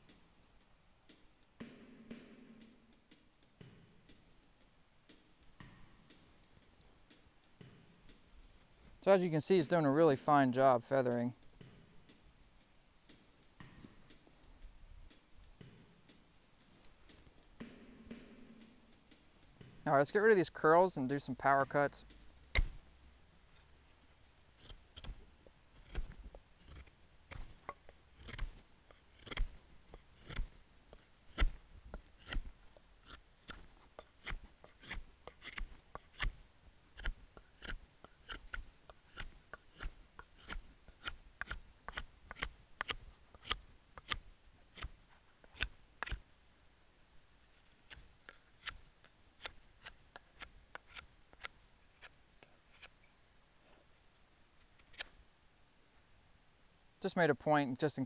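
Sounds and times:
knife cutting into a stick: 22.2s - 22.9s, 24.6s - 30.6s, 31.3s - 46.2s, 47.8s - 53.1s, 54.7s - 55.2s.

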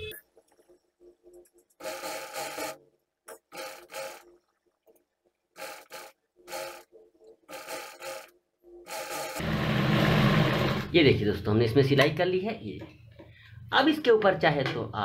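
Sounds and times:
sewing machine stitching fabric: 1.6s - 4.4s, 5.5s - 10.9s.

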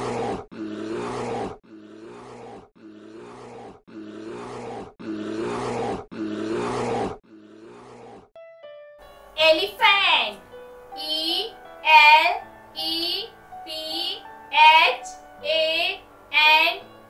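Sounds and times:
bear growling: 0.0s - 8.4s.

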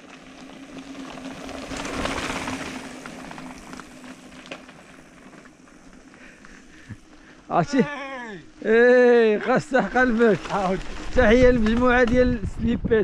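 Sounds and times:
bike tyre noise: 0.0s - 13.0s
wind noise: 9.9s - 13.0s.

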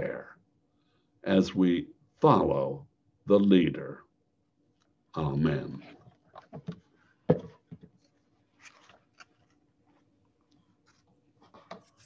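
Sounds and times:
soft rustle: 5.8s - 12.0s
handling clicks and knocks: 6.3s - 8.0s.

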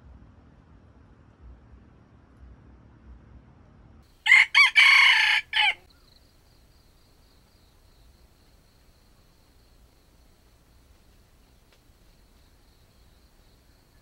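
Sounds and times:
rooster crowing: 4.2s - 5.9s.

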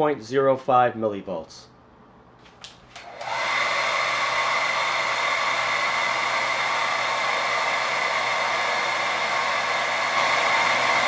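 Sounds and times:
hair dryer running: 2.7s - 11.0s.

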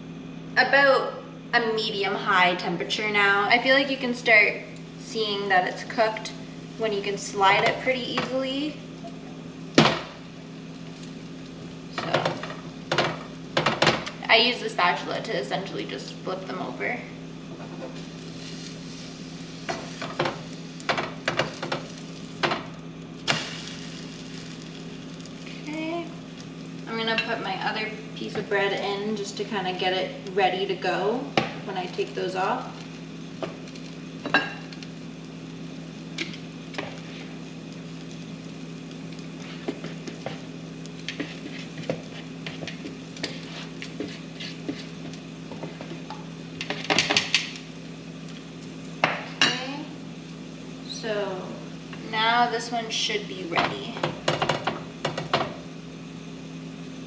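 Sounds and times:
french toast sizzling in pan: 3.6s - 57.0s
spatula scraping and knocking pan: 39.4s - 47.4s.

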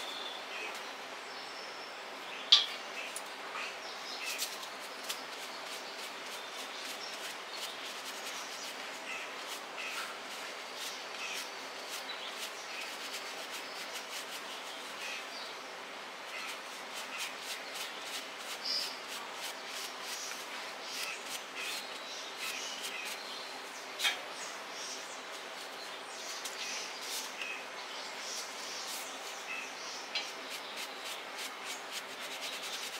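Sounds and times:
brush scrubbing plush fur: 4.2s - 15.3s, 16.3s - 23.2s, 28.2s - 32.9s.

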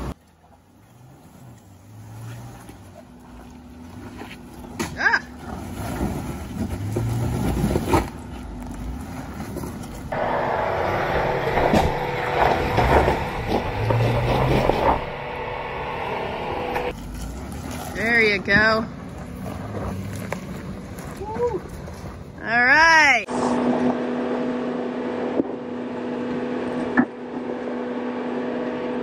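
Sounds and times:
engine running at low revs: 0.0s - 22.4s, 23.3s - 29.0s
tyres grinding over rock: 4.4s - 15.8s.

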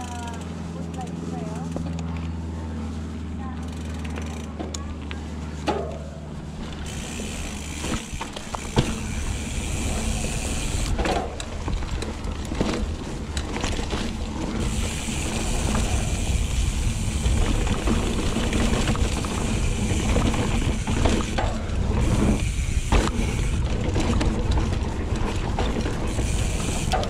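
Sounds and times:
bike tyre rumble: 0.0s - 27.0s
high hub buzz: 0.0s - 27.0s
bike frame knocks and rattles: 5.6s - 15.2s, 17.1s - 27.0s
wind on microphone: 14.6s - 21.0s.

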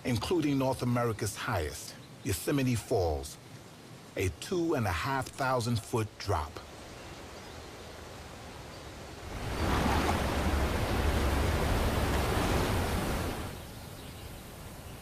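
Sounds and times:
waterfall rushing: 9.2s - 13.6s.

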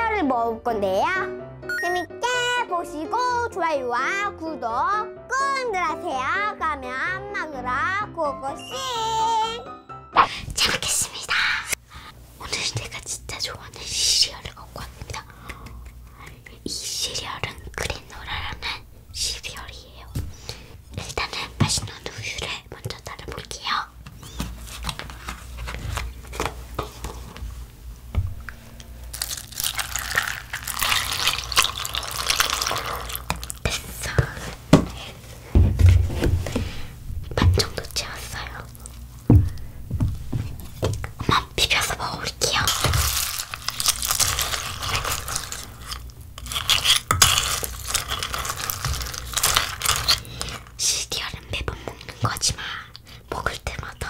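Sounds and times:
milk pouring onto cereal: 29.1s - 33.6s
cornflakes crackling and rustling: 29.1s - 33.9s, 42.4s - 50.8s
paper carton crinkling: 42.5s - 50.7s.

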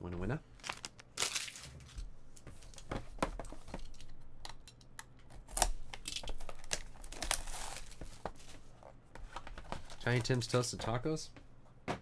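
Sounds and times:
plastic crinkling: 0.6s - 2.0s.

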